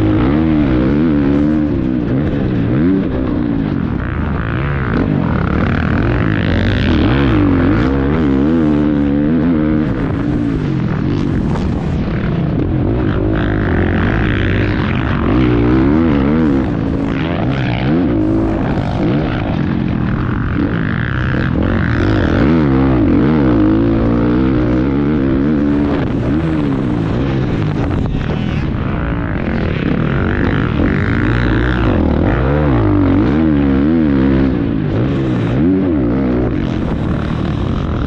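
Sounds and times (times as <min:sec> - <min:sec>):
motocross bike engine revving: 0:00.0 - 0:38.0.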